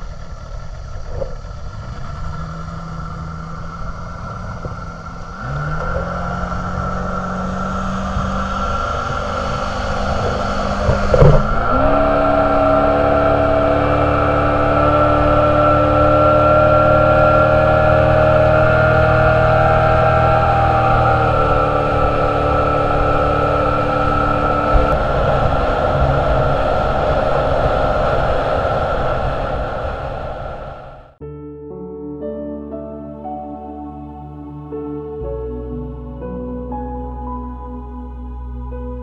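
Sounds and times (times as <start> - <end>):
motorboat engine: 0.0 - 31.2
sharp thump: 9.1 - 11.8.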